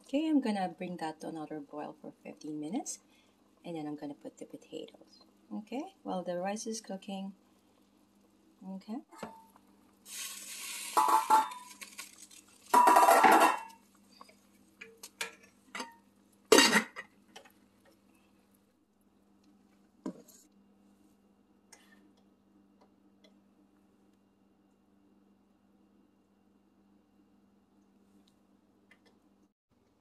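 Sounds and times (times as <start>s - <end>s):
metal pot and utensils clanking: 10.1s - 13.8s, 14.8s - 17.1s.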